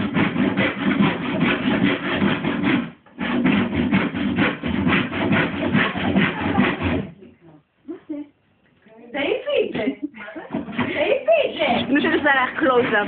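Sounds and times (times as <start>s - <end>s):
hand saw cutting wood: 0.0s - 7.1s, 10.5s - 13.0s.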